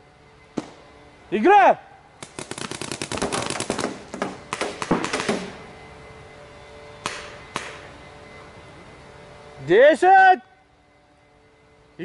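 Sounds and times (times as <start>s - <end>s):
paintball markers firing: 2.2s - 5.5s.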